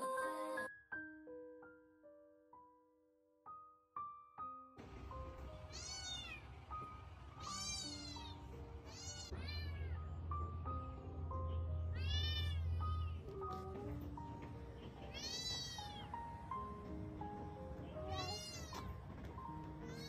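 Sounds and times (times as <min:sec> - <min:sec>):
soft piano music: 0:00.0 - 0:20.0
kitten meowing: 0:05.7 - 0:06.4, 0:07.4 - 0:10.0, 0:11.9 - 0:13.2, 0:15.1 - 0:16.1, 0:18.0 - 0:18.9.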